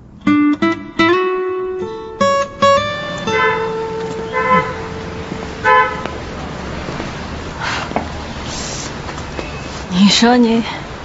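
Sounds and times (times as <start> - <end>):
plucked guitar melody: 0.0 - 6.4.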